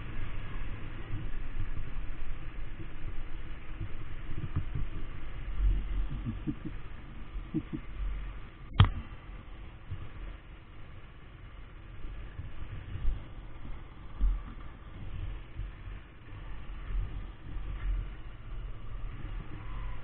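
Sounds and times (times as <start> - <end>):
low uneven rumble: 0.0 - 20.0.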